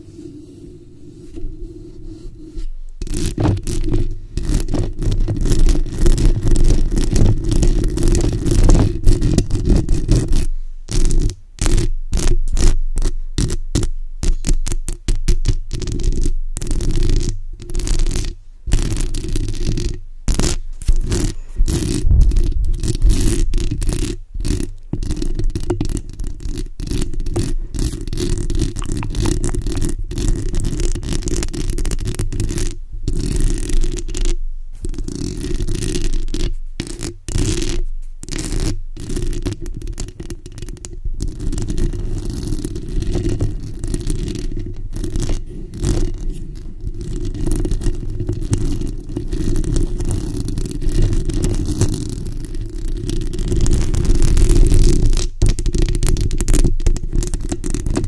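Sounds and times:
fingernails scratching microphone grille: 0:00.0 - 0:52.4.

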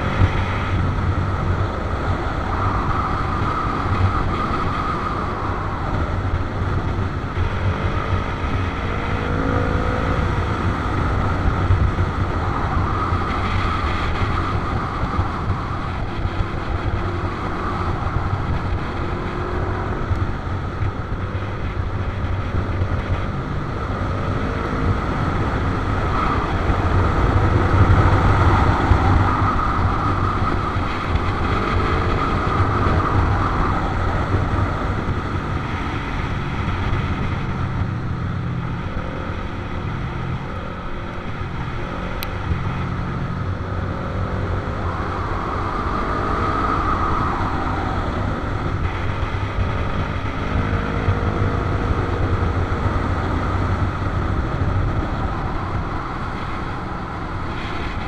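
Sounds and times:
motorcycle engines: 0:00.0 - 0:58.0
wind rush on microphone: 0:00.0 - 0:58.0.

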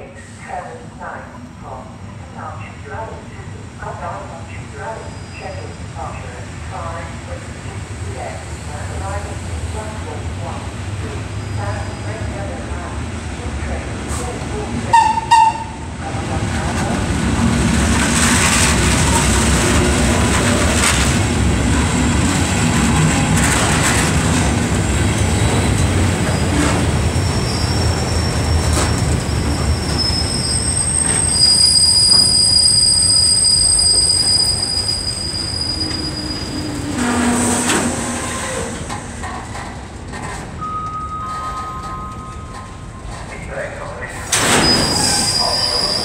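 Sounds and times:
freight train rumbling past: 0:00.0 - 0:46.0
high wheel squeal: 0:26.4 - 0:38.9, 0:44.4 - 0:46.0.

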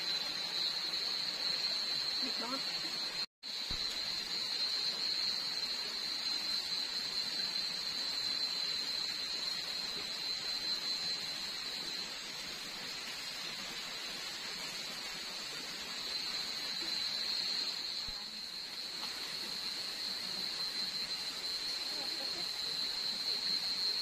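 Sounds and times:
insect chorus drone: 0:00.0 - 0:24.0.

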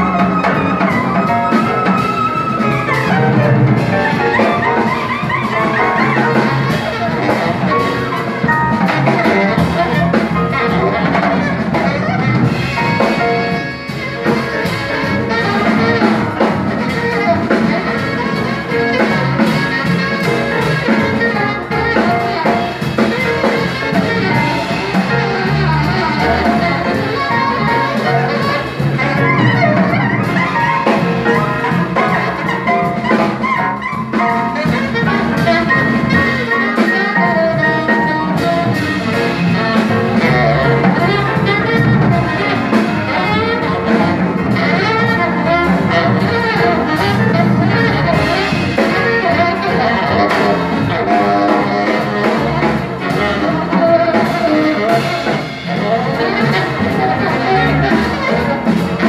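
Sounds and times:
double bass: 0:00.0 - 0:59.0
piano: 0:00.0 - 0:59.0
saxophone melody: 0:00.0 - 0:59.0.

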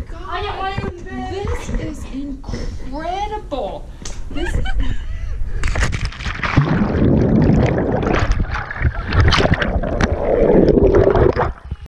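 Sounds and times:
underwater bubbles and churning water: 0:06.1 - 0:11.9.

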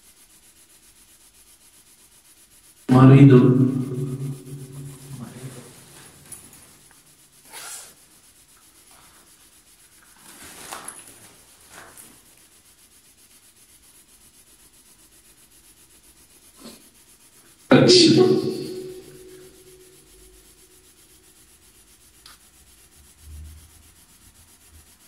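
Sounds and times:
faint rustling scrapes: 0:03.8 - 0:17.7.

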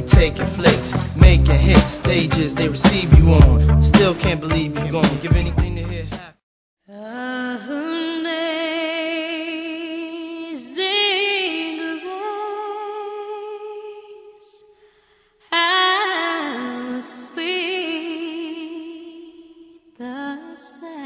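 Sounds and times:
woman singing with vibrato: 0:06.9 - 0:14.6, 0:15.5 - 0:21.0.

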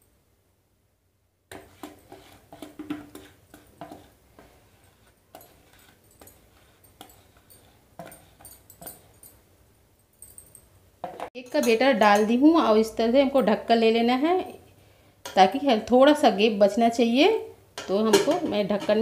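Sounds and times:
metal utensil scraping plastic container: 0:01.5 - 0:09.0.

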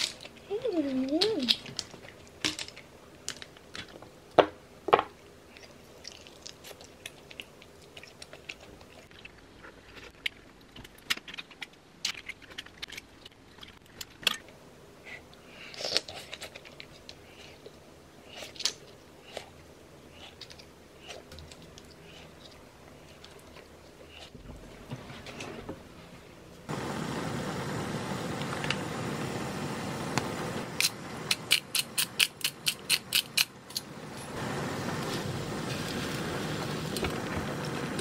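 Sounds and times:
chewing: 0:05.5 - 0:14.2.

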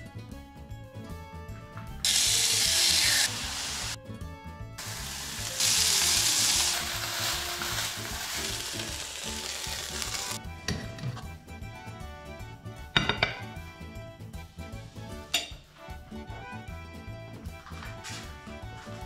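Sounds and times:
light instrumental music: 0:00.0 - 0:19.0
chicken sizzling in frying pan: 0:02.0 - 0:04.0, 0:04.8 - 0:10.4.

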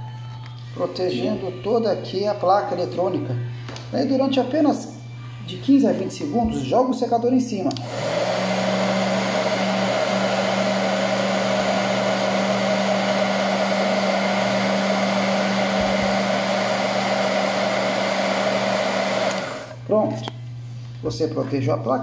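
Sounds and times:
hair dryer running: 0:07.8 - 0:19.8.

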